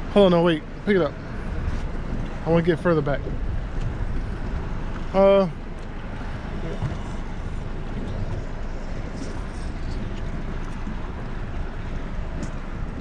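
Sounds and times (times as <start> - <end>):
outboard motor running: 0.0 - 13.0
water noise: 0.0 - 13.0
wind: 0.0 - 13.0.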